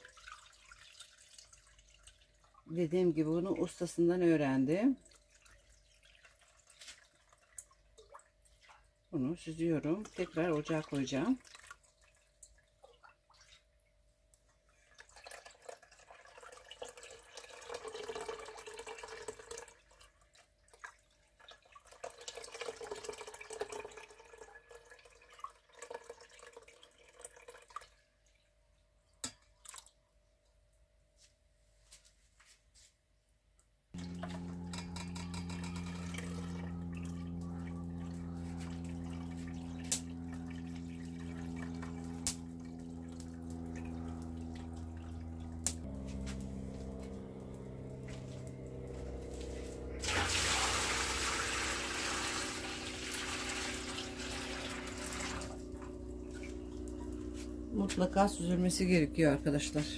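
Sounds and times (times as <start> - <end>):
liquid pouring and splashing: 0.0 - 30.0, 34.0 - 58.3
steady low hum: 34.0 - 59.9.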